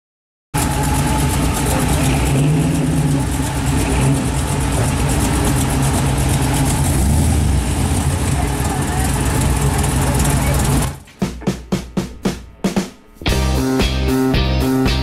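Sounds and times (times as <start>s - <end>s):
car engine running: 0.6s - 12.5s.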